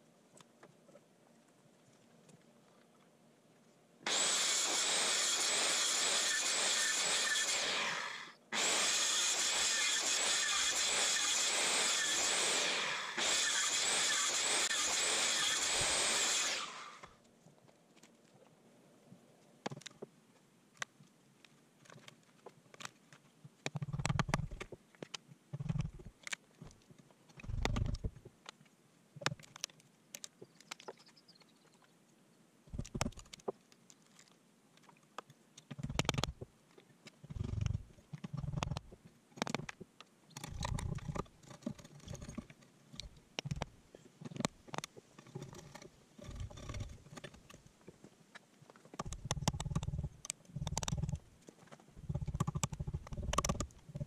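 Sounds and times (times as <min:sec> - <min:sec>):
power tool running: 0:04.1 - 0:17.1
wood and tools being handled: 0:19.6 - 0:31.2, 0:38.0 - 0:52.0
sharp clicks: 0:23.6 - 0:28.2, 0:34.8 - 0:36.5, 0:37.3 - 0:47.6, 0:48.9 - 0:51.2, 0:52.0 - 0:54.0.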